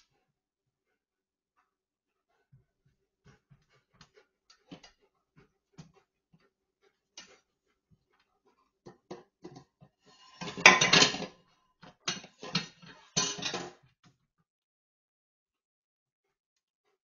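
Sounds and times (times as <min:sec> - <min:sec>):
dishes and cutlery clattering in sink: 0:08.9 - 0:13.8.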